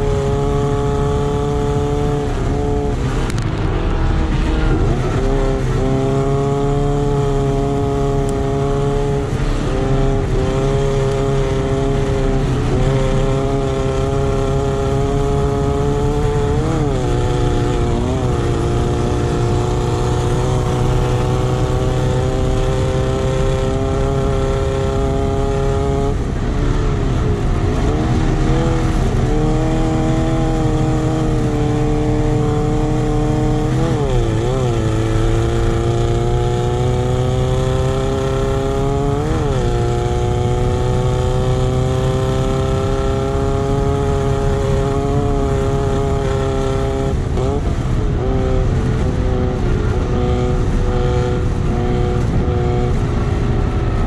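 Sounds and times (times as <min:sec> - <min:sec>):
buggy engine running hard: 0:00.0 - 0:54.0
low rumble: 0:02.3 - 0:07.3.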